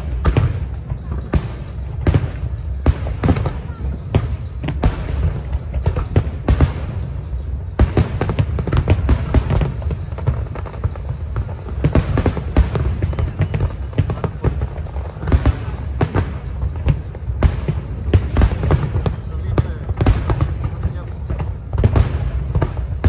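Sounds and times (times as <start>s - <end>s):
fireworks bangs and crackles: 0.0s - 23.0s.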